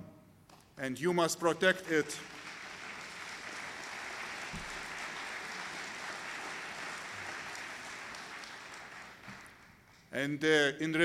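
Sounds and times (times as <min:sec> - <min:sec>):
audience applauding: 0:01.8 - 0:10.1.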